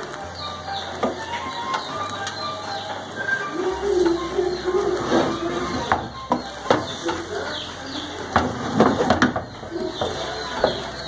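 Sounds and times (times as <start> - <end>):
birds calling: 0.0 - 11.0.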